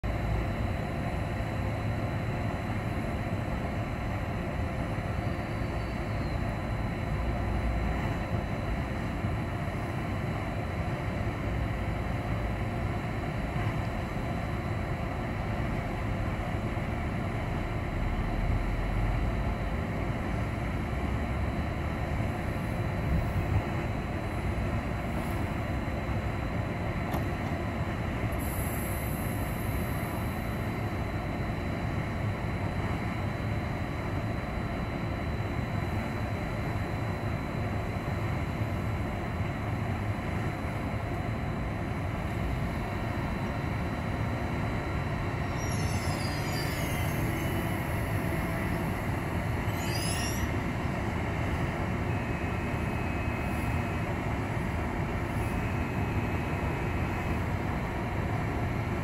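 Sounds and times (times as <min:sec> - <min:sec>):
locomotive fans humming: 0:00.0 - 0:59.0
faint high tones: 0:45.3 - 0:50.8.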